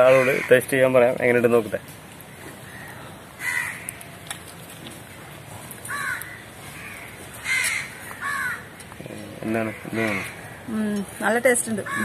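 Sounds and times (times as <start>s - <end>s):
crows cawing: 0.0s - 1.0s, 2.3s - 4.2s, 5.8s - 12.0s.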